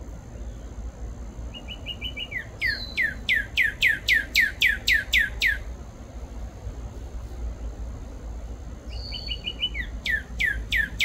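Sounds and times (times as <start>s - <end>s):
cardinal singing whistles: 1.5s - 5.6s, 8.9s - 11.0s.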